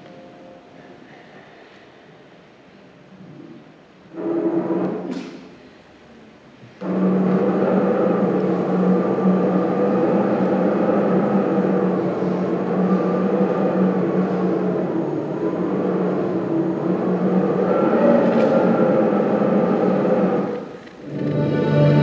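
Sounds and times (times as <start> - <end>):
ominous ambient drone: 6.8 - 22.0.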